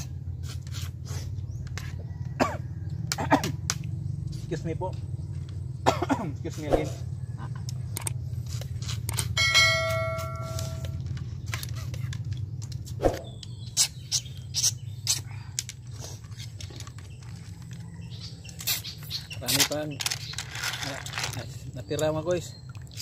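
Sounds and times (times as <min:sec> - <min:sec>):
metal bowl ringing: 0:09.4 - 0:11.0.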